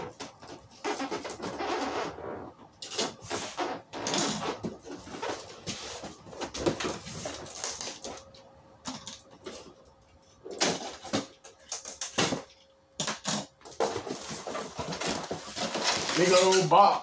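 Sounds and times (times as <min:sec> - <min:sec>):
packing paper rustling: 0:03.0 - 0:08.3, 0:13.3 - 0:16.9.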